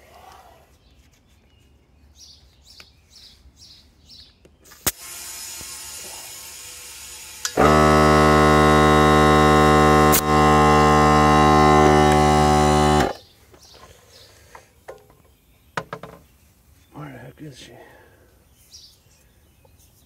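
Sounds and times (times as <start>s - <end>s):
air compressor motor running: 4.9s - 13.2s.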